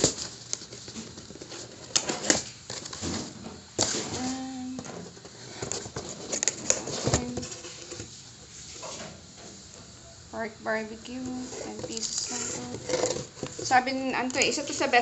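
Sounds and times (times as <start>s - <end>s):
wrapping rustling: 11.1s - 15.0s.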